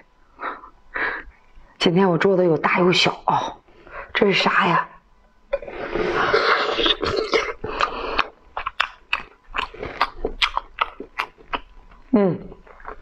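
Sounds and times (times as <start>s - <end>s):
wet slurp: 5.6s - 8.9s
chewing: 6.3s - 13.0s
mouth clicks and lip smacks: 6.8s - 13.0s.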